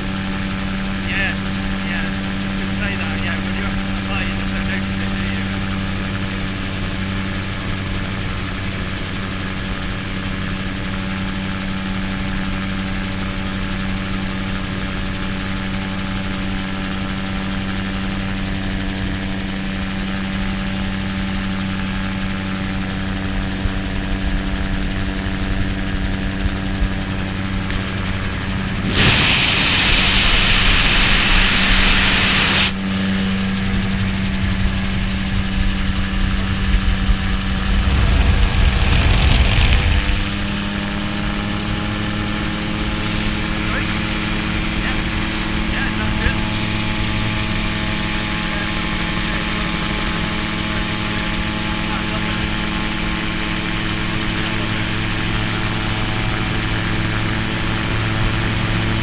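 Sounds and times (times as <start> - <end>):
gyroplane engine and propeller drone: 0.0 - 59.0
loud rushing hiss: 28.8 - 32.7.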